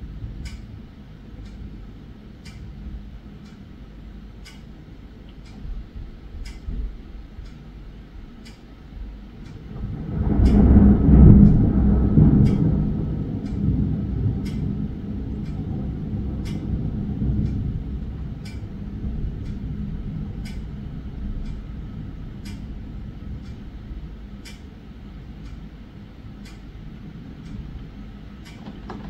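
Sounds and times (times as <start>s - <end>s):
steady rain: 0.0s - 29.0s
sharp ticks: 6.4s - 6.8s, 9.4s - 20.7s, 22.4s - 22.8s
thunder rumbling: 9.4s - 29.0s.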